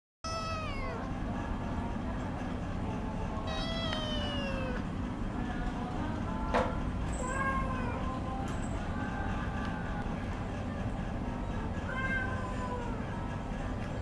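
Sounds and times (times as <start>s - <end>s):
cat meowing: 0.2s - 1.1s, 3.4s - 4.8s, 11.9s - 13.0s
steady low hum: 0.3s - 14.0s.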